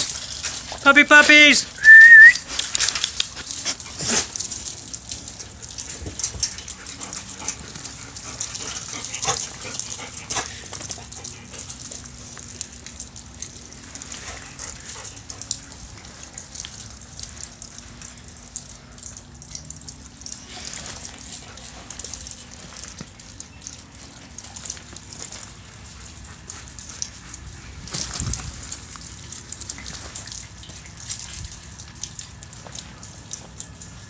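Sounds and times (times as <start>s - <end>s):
puppies scuffing on gravel: 0.0s - 1.8s, 2.4s - 7.9s.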